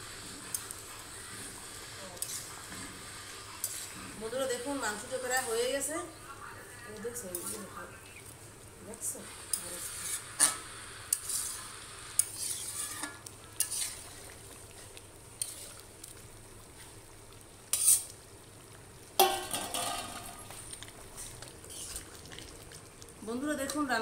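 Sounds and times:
curry sizzling and bubbling: 0.0s - 24.0s
metal spatula scraping a pan: 2.2s - 2.6s, 3.6s - 5.6s, 9.5s - 14.3s, 15.4s - 15.8s, 17.7s - 18.1s, 19.2s - 22.1s.

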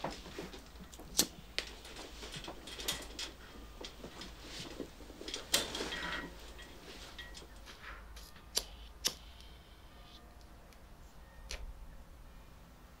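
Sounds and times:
lighter clicks: 8.5s - 9.2s.

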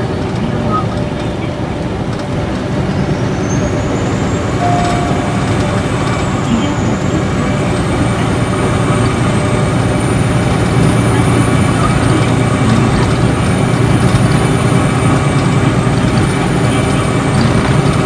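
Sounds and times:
diesel coach engine rumble: 0.0s - 18.0s
road noise: 0.0s - 18.0s.

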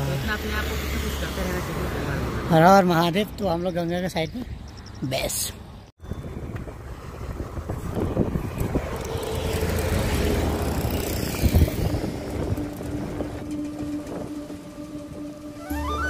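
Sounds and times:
bus and cars passing: 0.0s - 16.0s
wind on microphone: 6.0s - 15.7s
flute tune: 12.1s - 16.0s.

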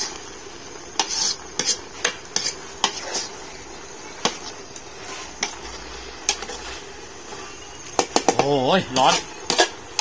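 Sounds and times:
metal spoon scraping metal pot: 1.0s - 3.3s, 9.0s - 10.0s.

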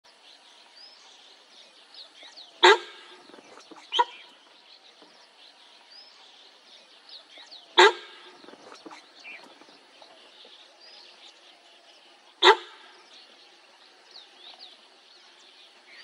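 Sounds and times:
birdsong: 0.1s - 16.0s
deer alarm call honk: 2.6s - 3.3s, 7.8s - 8.4s, 12.4s - 12.9s.

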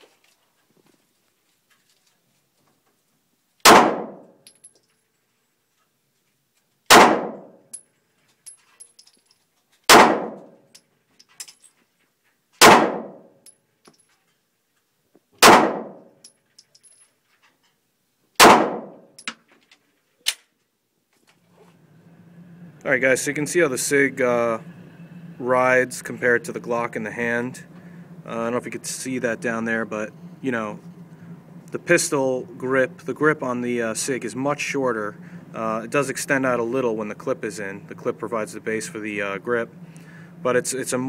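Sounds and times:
pistol shots echoing indoors: 3.6s - 4.3s, 6.9s - 7.6s, 9.9s - 10.5s, 12.6s - 13.2s, 15.4s - 16.1s, 18.4s - 19.0s.

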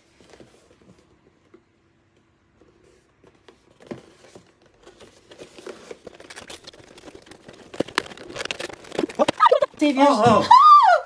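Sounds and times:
paper wrapping rustling and tearing: 2.8s - 10.3s.

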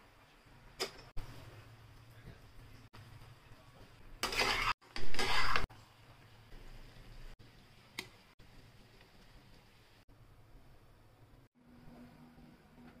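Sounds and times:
utensil scraping metal pan: 4.2s - 5.6s.

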